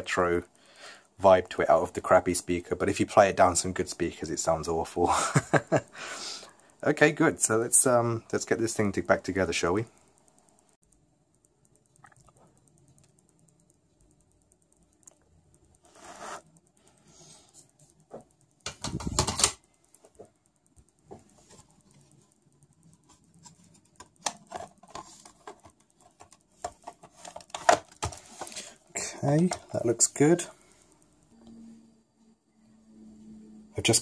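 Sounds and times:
rustling scrape: 15.8 - 16.5
plastic parts clattering: 18.6 - 19.6, 23.6 - 28.6.

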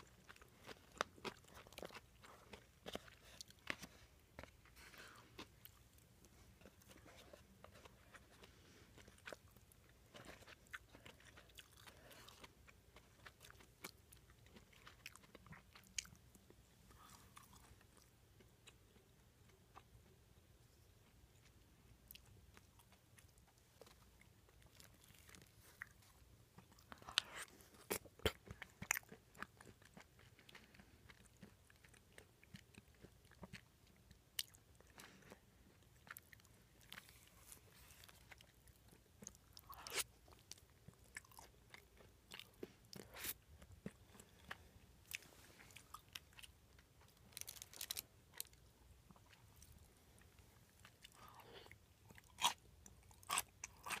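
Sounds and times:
person chewing: 0.0 - 54.0.

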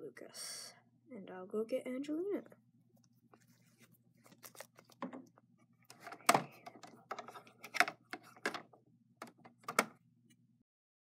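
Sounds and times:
plastic toys clicking and tapping: 5.9 - 9.9.

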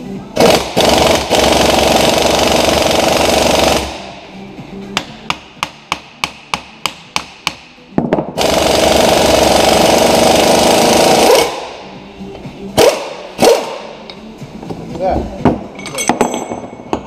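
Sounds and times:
air impact wrench hammering: 0.4 - 4.1, 4.9 - 12.0, 12.8 - 14.2.

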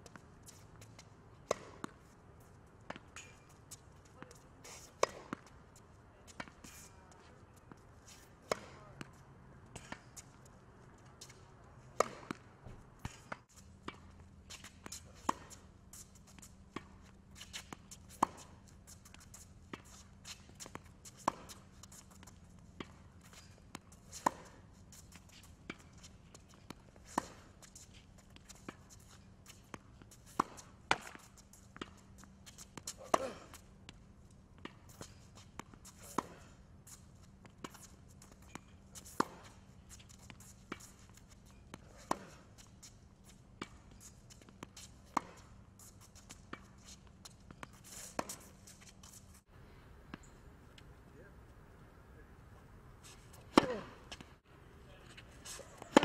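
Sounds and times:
tennis racket hitting ball: 1.4 - 2.0, 5.0 - 5.5, 12.0 - 12.4, 29.7 - 32.0, 32.7 - 33.6, 34.6 - 36.5, 37.6 - 39.6, 40.2 - 42.4, 44.4 - 45.5, 53.0 - 54.4, 55.1 - 56.0.

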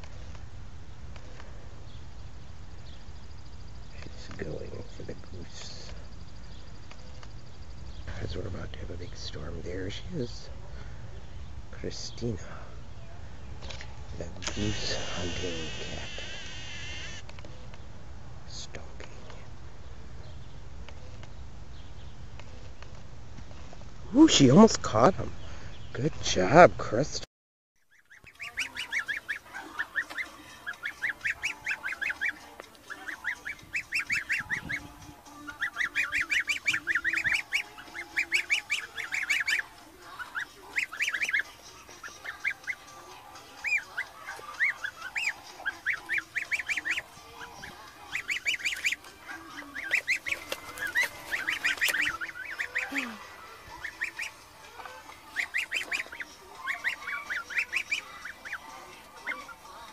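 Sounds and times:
young goose honking: 14.5 - 17.2, 27.9 - 59.9.

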